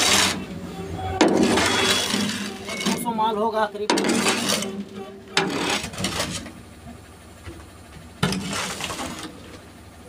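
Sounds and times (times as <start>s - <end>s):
shovel scraping steel truck bed: 0.0s - 6.7s, 8.2s - 9.6s.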